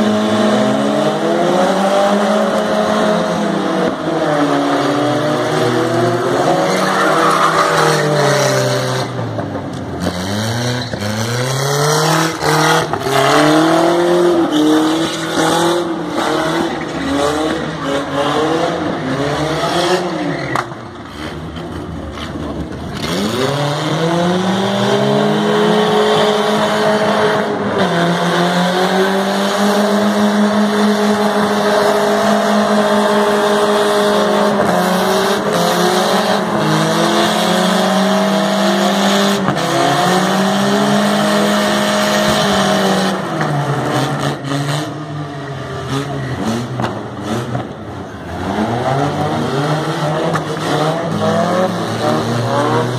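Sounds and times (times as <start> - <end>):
car engine revving: 0.0 - 52.9
tyres squealing on concrete: 6.4 - 9.2.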